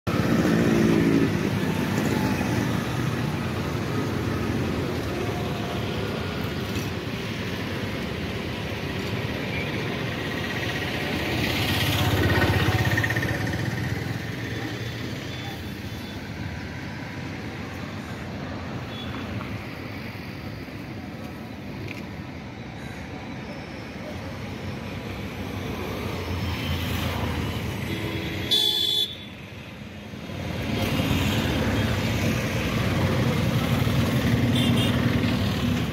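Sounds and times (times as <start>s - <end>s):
road traffic on a bridge: 0.0s - 35.9s
motorcycles passing: 0.1s - 17.4s, 30.2s - 35.9s
vehicle horn: 28.0s - 29.3s, 34.5s - 35.0s.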